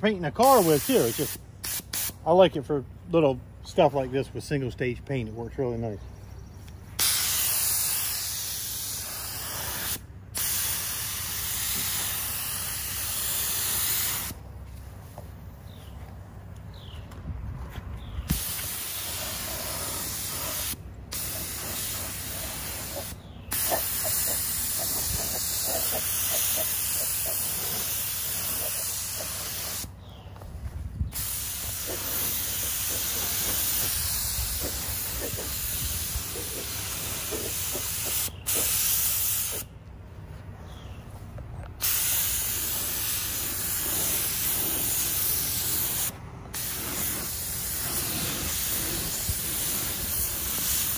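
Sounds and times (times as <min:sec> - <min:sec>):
paint spray gun hissing: 0:00.4 - 0:02.2, 0:07.0 - 0:14.4, 0:18.3 - 0:29.9, 0:31.1 - 0:39.7, 0:41.8 - 0:50.9.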